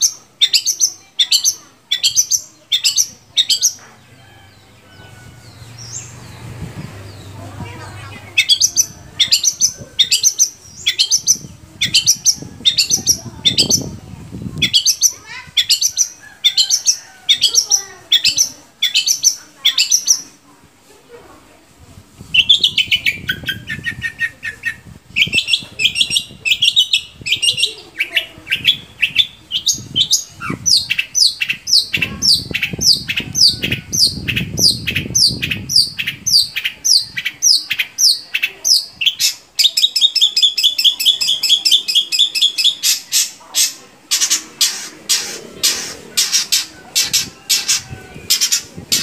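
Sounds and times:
bird singing: 0.0 - 13.9, 14.6 - 20.2.

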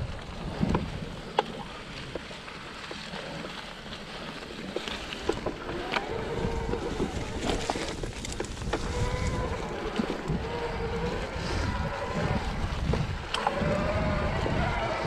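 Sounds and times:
tyres rumbling on rough trail: 0.0 - 15.0
bike knocks and rattles: 4.7 - 10.4
wind buffeting: 5.3 - 15.0
electric motor whining: 5.4 - 15.0.

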